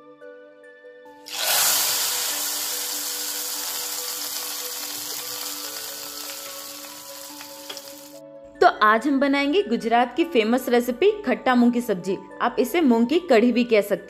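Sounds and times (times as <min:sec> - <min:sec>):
background music: 0:00.0 - 0:14.0
hot oil sizzling: 0:01.3 - 0:08.2.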